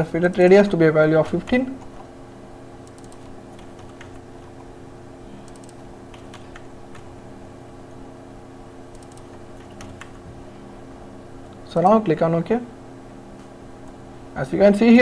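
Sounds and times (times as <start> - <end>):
steady low hum: 0.0 - 15.0
keyboard keystrokes and clicks: 2.8 - 4.7, 5.4 - 7.1, 8.9 - 10.2.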